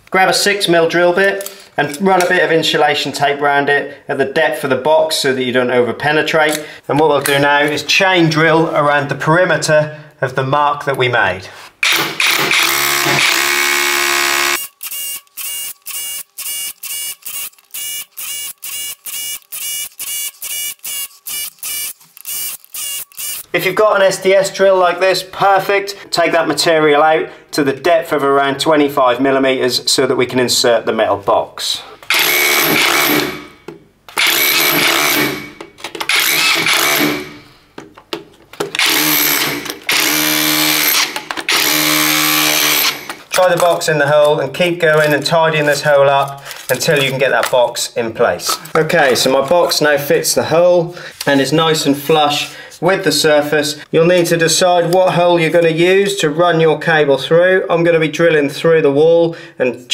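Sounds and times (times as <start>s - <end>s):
hammer drill drilling into wall: 11.8s - 23.5s, 32.1s - 33.5s, 34.2s - 37.4s, 38.8s - 43.2s.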